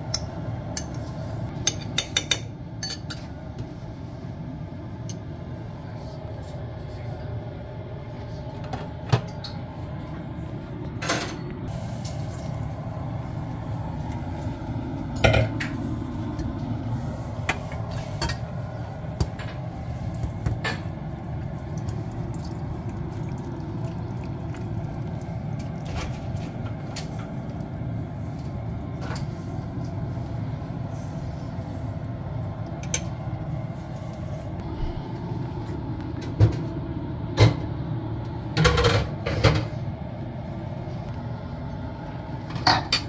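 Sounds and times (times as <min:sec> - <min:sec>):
steady low hum: 0:00.0 - 0:43.0
metal spoon clinking on cookware: 0:01.6 - 0:03.3.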